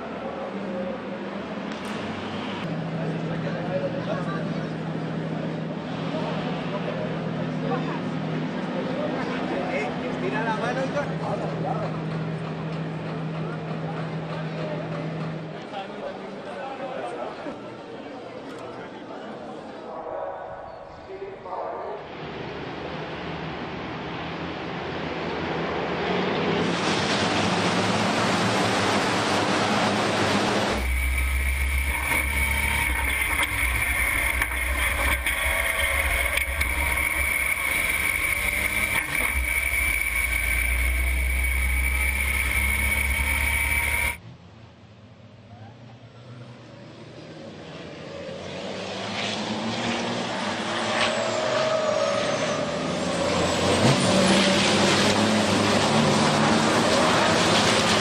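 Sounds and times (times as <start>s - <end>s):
trucks passing: 22.0s - 44.4s
racing truck engines accelerating: 22.1s - 44.2s, 46.3s - 58.0s
deep engine rumble with whine: 29.3s - 44.2s.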